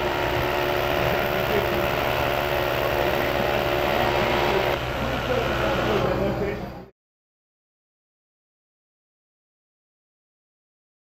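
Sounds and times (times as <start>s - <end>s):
rotary hammer drilling into concrete: 0.0s - 4.9s.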